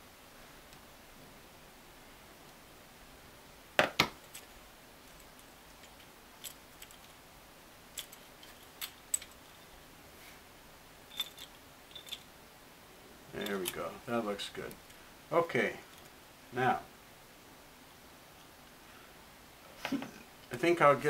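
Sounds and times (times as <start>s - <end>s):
small metal parts clinking: 4.2s - 7.2s, 7.9s - 9.8s, 11.1s - 12.3s, 13.4s - 13.8s.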